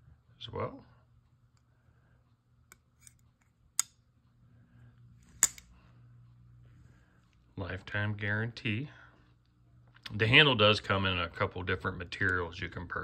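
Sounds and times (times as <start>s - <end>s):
folding knife clicking: 5.3s - 5.7s.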